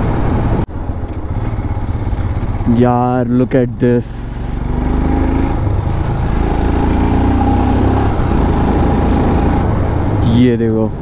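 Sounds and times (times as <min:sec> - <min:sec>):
wind noise: 0:00.0 - 0:02.7
motorcycle engine running: 0:00.0 - 0:10.4
road noise: 0:00.0 - 0:11.0.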